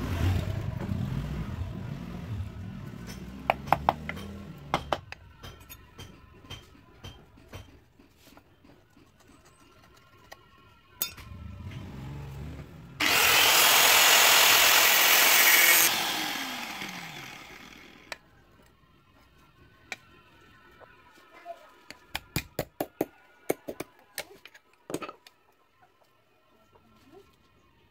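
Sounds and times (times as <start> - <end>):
angle grinder spinning: 13.0 - 18.1
grinder cutting steel: 13.0 - 18.2.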